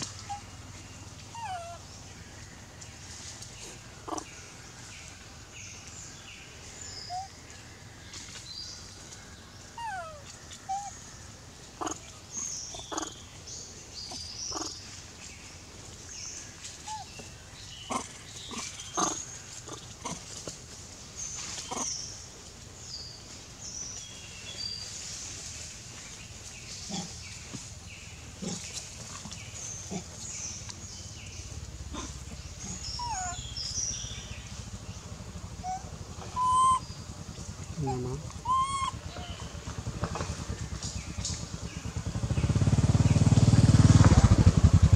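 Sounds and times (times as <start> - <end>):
macaques calling: 0.0 - 0.5, 1.2 - 1.9, 4.0 - 4.3, 7.1 - 7.3, 9.7 - 11.0, 11.8 - 13.2, 14.1 - 14.8, 17.9 - 20.4, 21.6 - 22.0, 31.9 - 33.4, 35.6 - 36.9, 37.7 - 39.5.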